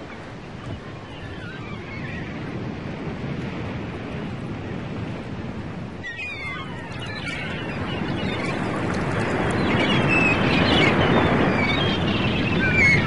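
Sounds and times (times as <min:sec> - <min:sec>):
wavering high bird calls: 0:06.0 - 0:08.8, 0:09.4 - 0:13.0
steady outdoor rushing noise: 0:06.9 - 0:12.2.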